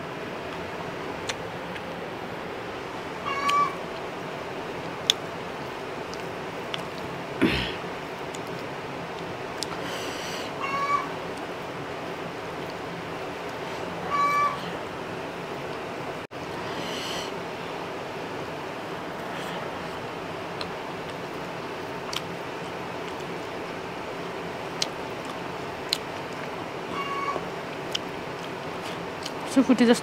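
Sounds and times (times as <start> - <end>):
cat meowing: 3.2 - 3.8, 14.0 - 14.6, 26.9 - 27.4.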